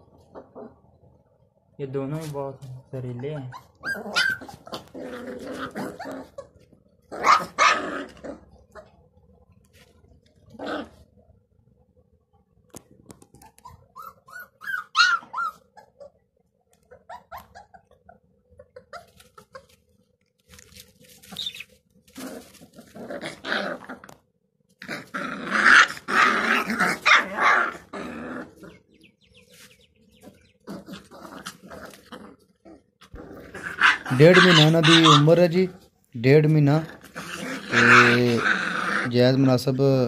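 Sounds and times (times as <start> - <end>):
puppies growling and yapping: 0.1 - 1.3, 2.9 - 11.9, 12.8 - 20.1, 20.7 - 36.0, 36.6 - 39.6
puppy yelps: 3.2 - 5.0, 5.6 - 6.5, 7.1 - 8.9, 13.4 - 16.2, 16.9 - 19.8, 21.3 - 21.7, 25.0 - 28.0, 33.4 - 35.4, 37.0 - 39.1.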